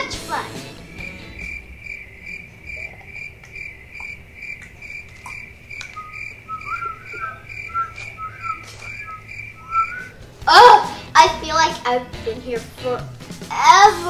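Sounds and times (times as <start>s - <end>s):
cricket chirping: 0.8s - 10.3s
person whistling a tune: 6.0s - 10.2s.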